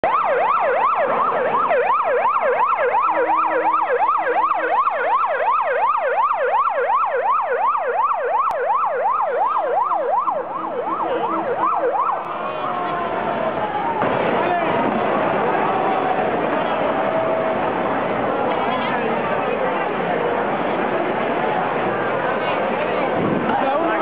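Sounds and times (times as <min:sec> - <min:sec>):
siren yelping: 0:00.0 - 0:18.2.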